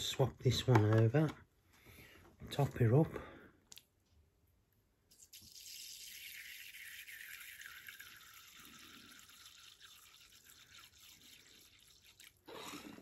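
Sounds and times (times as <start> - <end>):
water trickling into a dish: 5.2 - 12.5.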